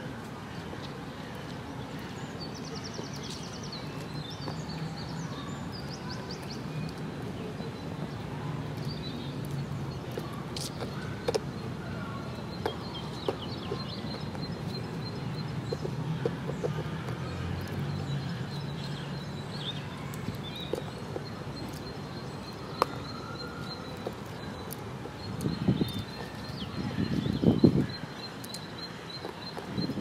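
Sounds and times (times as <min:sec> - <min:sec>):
small birds chirping: 0:00.3 - 0:30.0.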